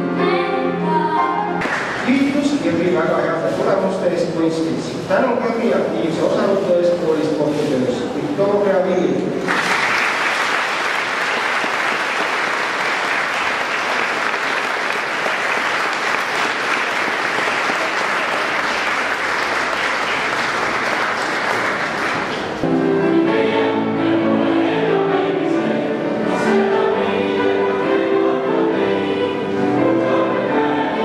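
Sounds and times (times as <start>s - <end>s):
audience applauding: 9.4s - 22.6s
choir singing: 22.6s - 31.0s.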